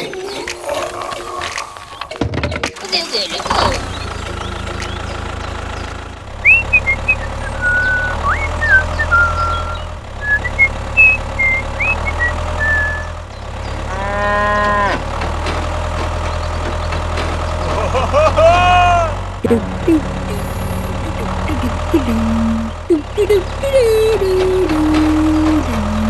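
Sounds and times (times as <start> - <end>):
small motor humming: 5.8 - 14.9, 19.4 - 26.0
short high whistled chirps: 6.4 - 13.2
cow mooing: 13.9 - 15.1.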